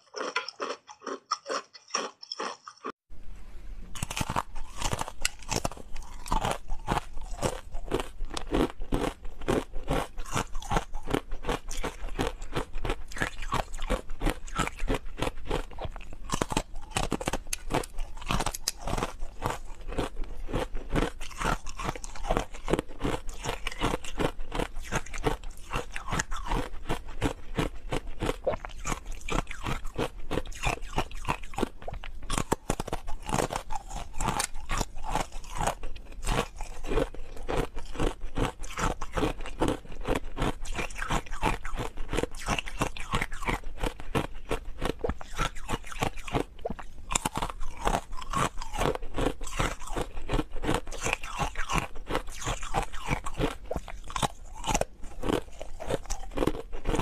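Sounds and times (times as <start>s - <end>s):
ice crunching while chewed: 0.0s - 3.0s, 3.9s - 57.0s.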